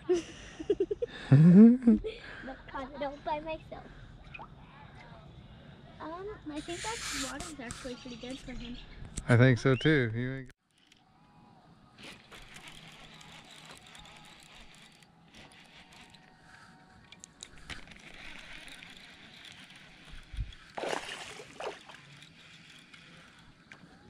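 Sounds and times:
water sloshing and gurgling: 20.4 - 22.2
water splashes: 20.7 - 22.1.

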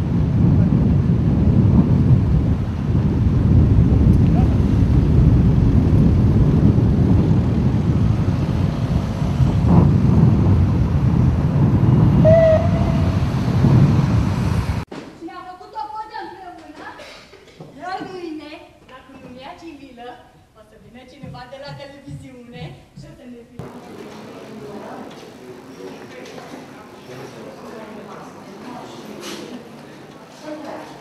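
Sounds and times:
wind buffeting microphone: 0.0 - 14.9
passing road traffic: 4.6 - 14.9.

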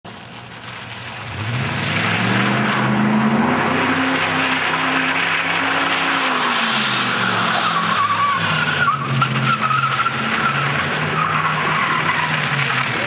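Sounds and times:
car engine running hard: 0.1 - 13.0
tyres squealing: 2.8 - 13.0.

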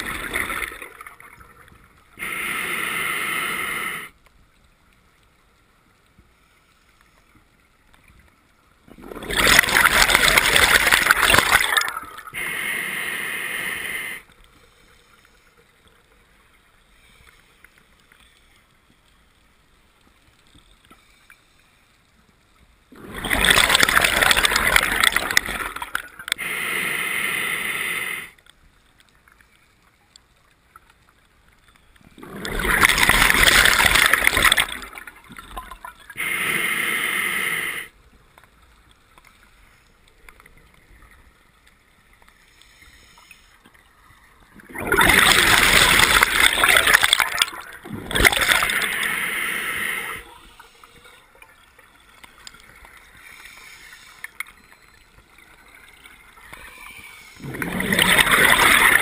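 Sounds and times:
exhaled bubbles burbling: 0.0 - 1.6, 8.9 - 12.4, 22.9 - 26.4, 32.2 - 36.2, 44.6 - 50.2, 57.4 - 59.0
regulator air inhale hiss: 2.2 - 4.2, 12.4 - 15.5, 26.3 - 28.4, 36.2 - 38.0, 42.4 - 43.6, 48.7 - 51.2, 53.2 - 54.4.

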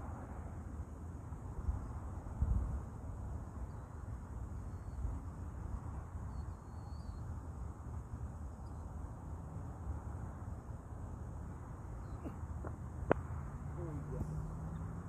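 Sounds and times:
wind rumbling on microphone: 1.4 - 6.8
faint high chirps: 6.2 - 7.3.

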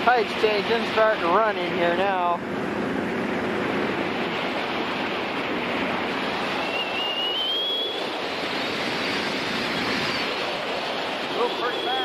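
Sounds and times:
wind and water rushing: 0.0 - 12.0
wind buffeting microphone: 0.0 - 12.0
thin rising whistle: 6.6 - 8.2.

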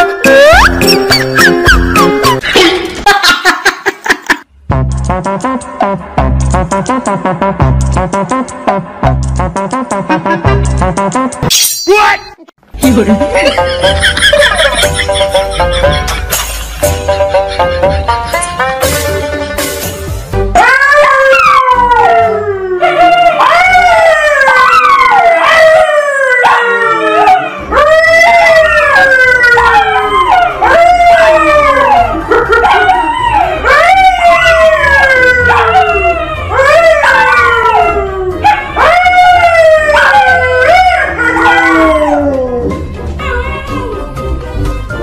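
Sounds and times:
dogs howling: 20.6 - 44.1
man howling: 20.6 - 44.1.

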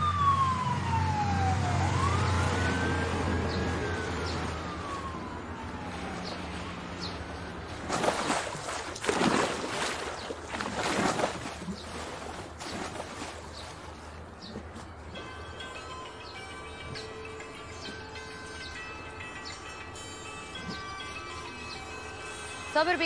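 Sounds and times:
emergency vehicle siren wailing: 0.0 - 8.4, 14.8 - 23.0
low traffic rumble: 0.0 - 23.0
swimmer splashing in pool: 2.3 - 14.8.

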